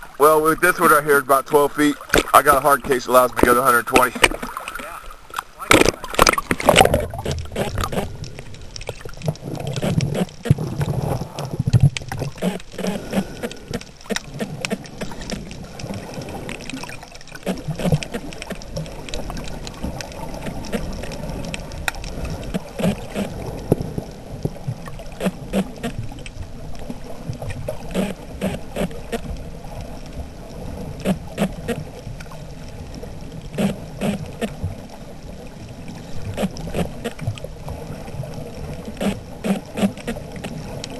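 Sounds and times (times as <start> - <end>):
muffled underwater rumbling: 0.0 - 40.9.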